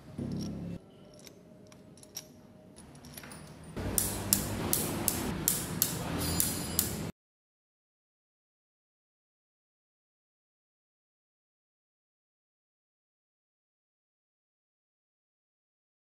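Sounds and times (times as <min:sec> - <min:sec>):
workshop hum: 0:00.0 - 0:07.1
metal parts clicking: 0:00.2 - 0:07.0
ratchet wrench clicking: 0:04.0 - 0:07.0.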